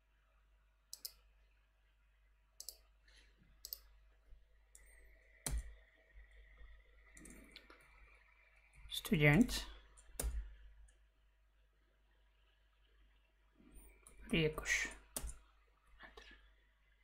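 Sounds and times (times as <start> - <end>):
computer mouse and key clicks: 0.9 - 1.3, 2.6 - 2.9, 3.6 - 3.9, 4.7 - 8.1, 10.0 - 11.0, 13.8 - 15.5.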